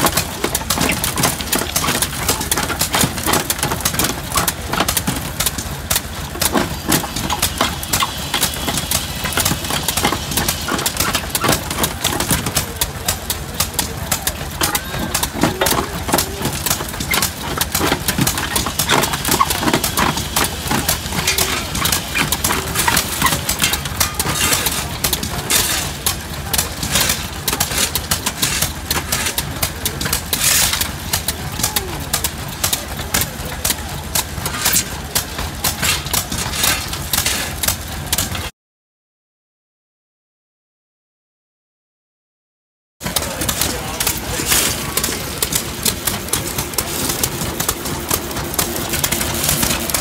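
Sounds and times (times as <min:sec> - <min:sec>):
low machinery hum: 0:00.0 - 0:38.5, 0:43.0 - 0:50.0
rock clattering through crusher: 0:00.0 - 0:38.5, 0:43.0 - 0:50.0
shovel scraping gravel: 0:14.8 - 0:29.6, 0:30.2 - 0:31.1, 0:34.5 - 0:37.8, 0:43.4 - 0:50.0.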